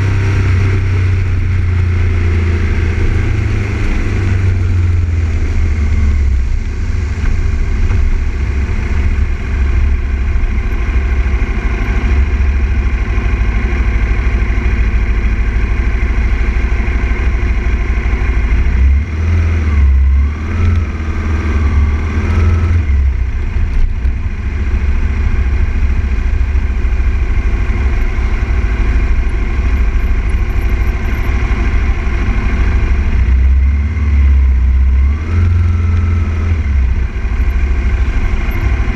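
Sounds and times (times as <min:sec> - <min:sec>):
motorcycle engine running: 0:00.0 - 0:38.9.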